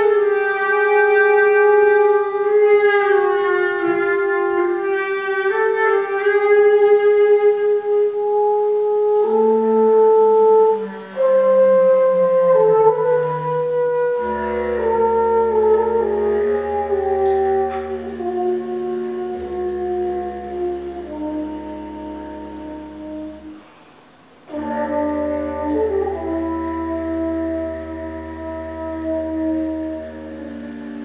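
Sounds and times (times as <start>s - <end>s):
clarinet: 0.0s - 31.0s
french horn: 0.0s - 31.0s.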